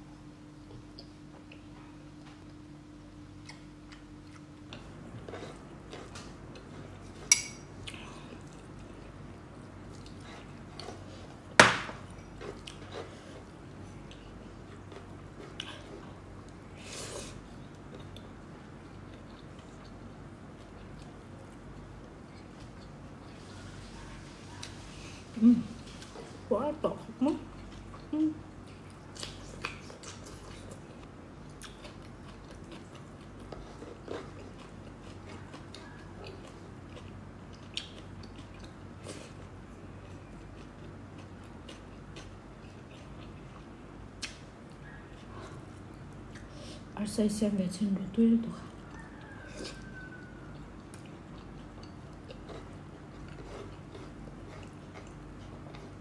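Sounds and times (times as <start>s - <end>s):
person chewing with wet mouth clicks: 31.5s - 39.4s, 44.2s - 45.3s, 48.8s - 56.0s.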